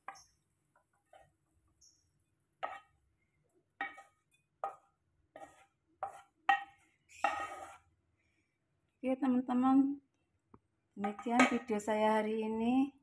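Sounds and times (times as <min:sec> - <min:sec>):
utensil scraping pan: 0:02.6 - 0:03.0, 0:03.8 - 0:07.9.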